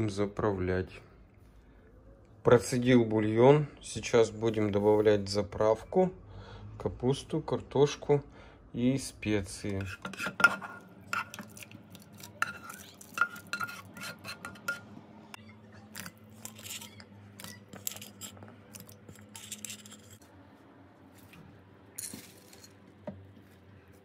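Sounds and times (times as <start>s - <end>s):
utensils clinking on ceramic plates: 12.3s - 14.9s, 15.9s - 20.2s.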